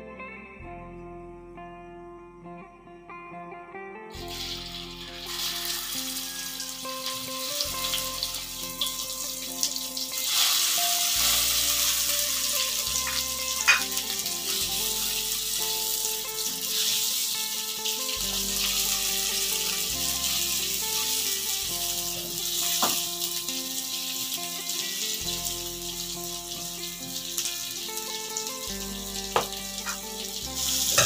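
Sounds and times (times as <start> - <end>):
food sizzling in hot oil: 4.2 - 31.0
spatula knocking wok: 13.0 - 14.6, 22.4 - 23.3, 29.3 - 30.2.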